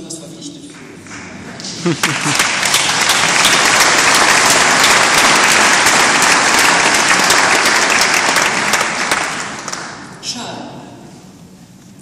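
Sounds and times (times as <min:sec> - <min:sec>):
audience applauding: 0:01.0 - 0:10.2.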